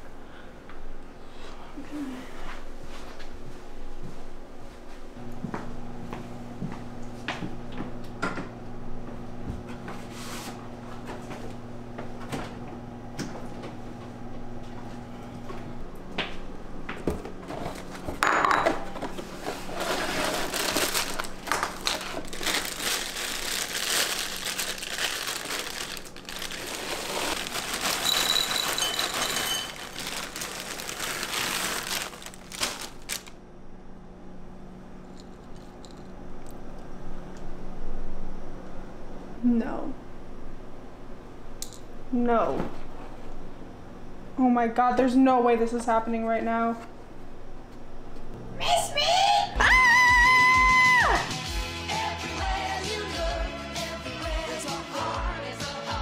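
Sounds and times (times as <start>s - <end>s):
steady low hum: 0.0s - 49.6s
cereal rattling into bowl: 19.8s - 33.3s.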